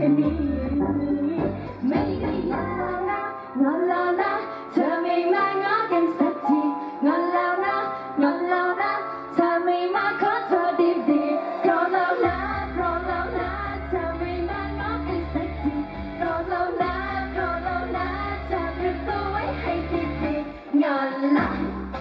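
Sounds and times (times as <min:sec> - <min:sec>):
deep bass beat: 0:00.0 - 0:02.8, 0:12.2 - 0:20.5
pop backing music: 0:00.0 - 0:22.0
woman singing pop song: 0:00.0 - 0:22.0.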